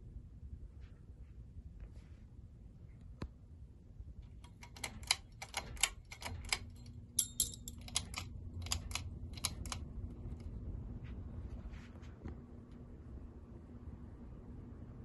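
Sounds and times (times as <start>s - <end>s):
ceiling fan low rumble: 0.0s - 15.0s
steady hum: 0.0s - 15.0s
sharp clicks and ticks: 4.2s - 10.5s.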